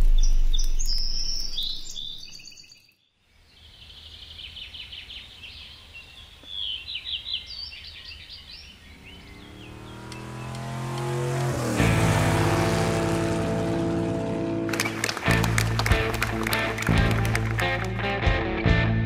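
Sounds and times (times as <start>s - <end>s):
deep low rumble: 0.0s - 1.8s
songbirds chirping: 0.0s - 14.2s
car engine approaching: 8.6s - 18.1s.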